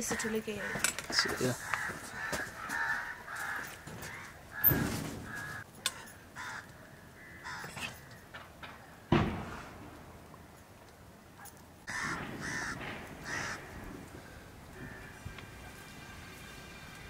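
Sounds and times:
crows cawing: 0.0s - 9.1s, 11.4s - 15.4s.

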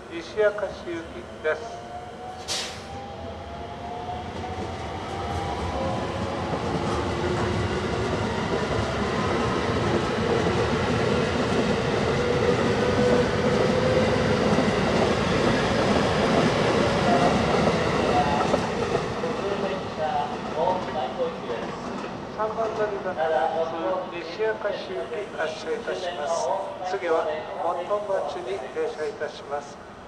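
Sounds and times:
train wheels rumbling on rail: 0.2s - 24.6s.

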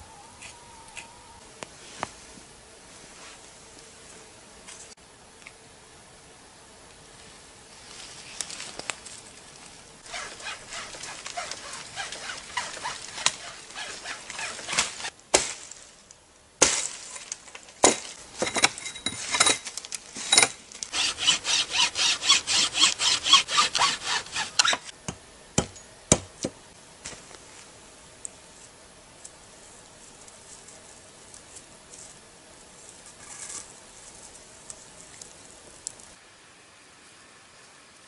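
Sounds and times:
crackling through dry brush: 7.0s - 18.3s, 19.6s - 24.5s, 27.0s - 36.2s
branches snapping: 8.3s - 9.2s, 10.0s - 18.2s
saw cutting branch: 10.0s - 15.8s, 20.8s - 25.0s.

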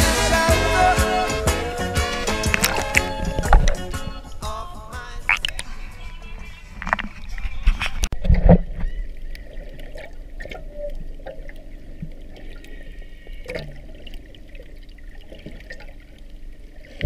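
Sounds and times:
low rumble: 1.4s - 7.7s
muffled underwater movement: 2.1s - 17.0s.

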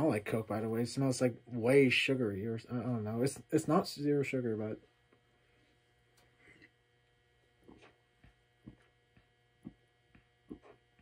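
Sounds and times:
faint electrical hum: 0.0s - 11.0s
person gulping and swallowing: 7.6s - 9.0s, 9.6s - 10.8s.

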